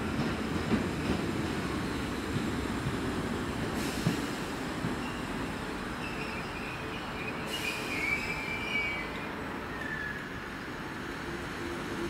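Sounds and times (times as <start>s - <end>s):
train rumbling: 0.0s - 12.0s
high-pitched train squeal: 6.0s - 10.4s.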